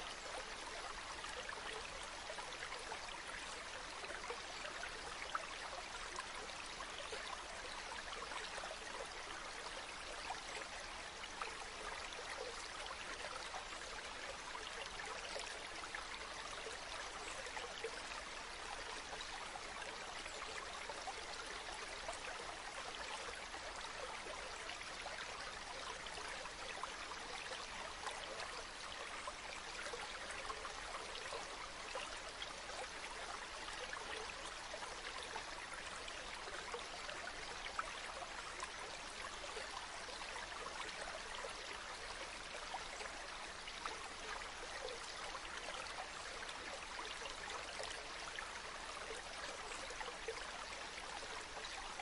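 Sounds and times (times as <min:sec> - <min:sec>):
stream flowing: 0:00.0 - 0:52.0.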